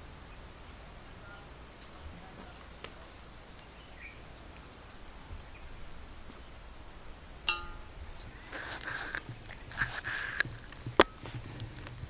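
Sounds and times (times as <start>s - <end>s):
faint outdoor background: 0.0s - 12.0s
knife knocking on metal bowl: 7.5s - 7.9s.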